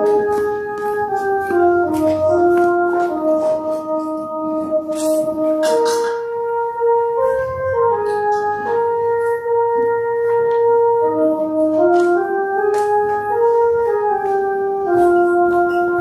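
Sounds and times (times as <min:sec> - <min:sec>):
church organ chords: 0:00.0 - 0:16.0.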